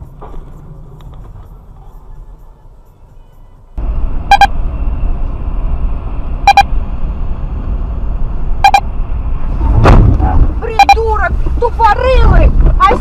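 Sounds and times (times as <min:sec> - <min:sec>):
car road and engine rumble: 0:00.0 - 0:13.0
short electronic beeps: 0:04.3 - 0:04.6, 0:06.4 - 0:06.7, 0:08.6 - 0:08.9, 0:10.7 - 0:11.0.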